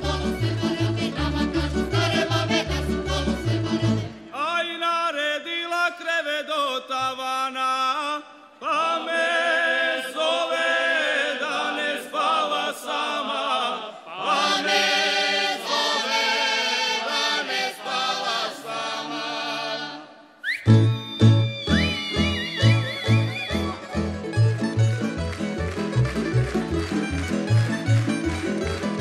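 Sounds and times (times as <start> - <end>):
unaccompanied choir singing: 0.0 - 4.2, 8.7 - 20.3.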